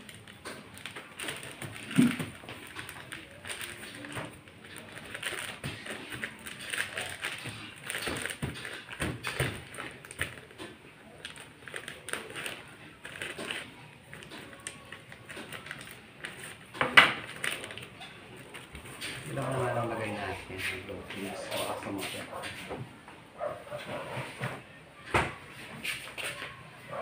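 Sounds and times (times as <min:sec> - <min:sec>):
plastic packet crinkling: 0:00.0 - 0:20.2.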